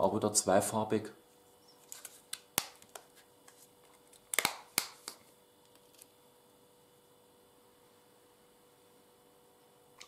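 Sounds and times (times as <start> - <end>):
faint steady hum: 0.0 - 10.0
plastic cup clicks and crackles: 3.9 - 6.1.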